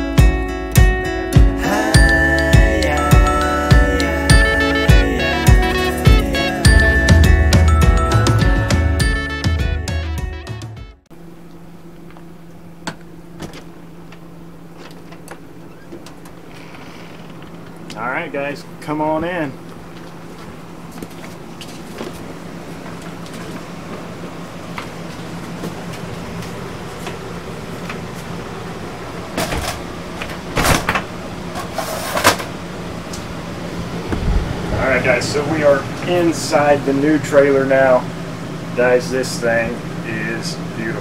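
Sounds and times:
low mechanical hum: 0:11.0 - 0:41.0.

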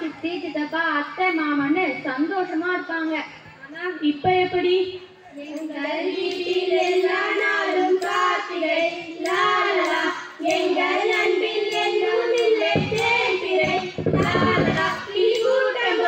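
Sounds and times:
girls singing: 0:05.4 - 0:16.0.

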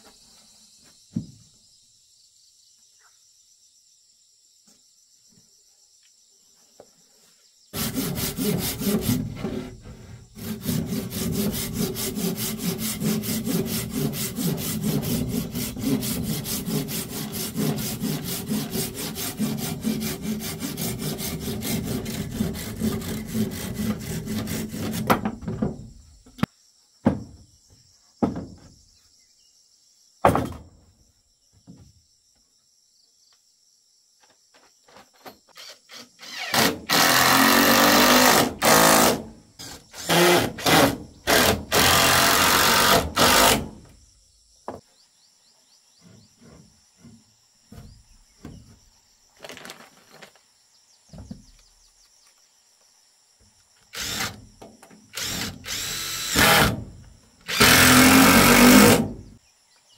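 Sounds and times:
insects chirping faintly: 0:00.0 - 0:59.9
hand saw cutting wood: 0:07.8 - 0:25.4, 0:35.6 - 0:43.8, 0:54.0 - 0:54.4, 0:55.2 - 0:56.9, 0:57.5 - 0:59.3.

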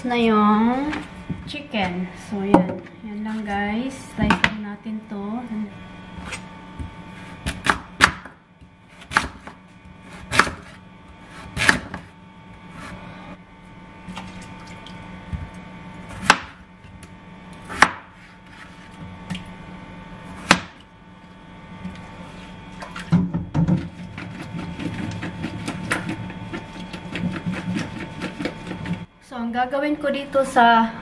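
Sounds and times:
knife slicing vegetables: 0:08.9 - 0:12.1, 0:23.8 - 0:29.1.

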